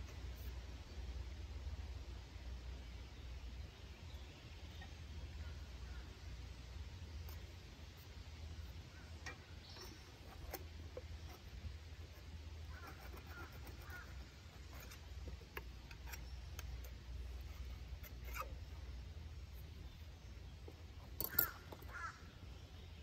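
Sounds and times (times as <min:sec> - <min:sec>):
low steady rumble: 0:00.0 - 0:23.0
bird calling: 0:12.7 - 0:15.0, 0:21.2 - 0:22.8.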